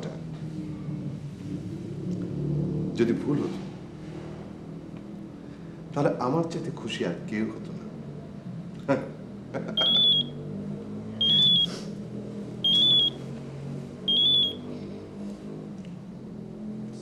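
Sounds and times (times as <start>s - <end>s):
mobile phone ringing: 9.8s - 10.3s, 11.2s - 11.7s, 12.7s - 13.2s, 14.1s - 14.6s.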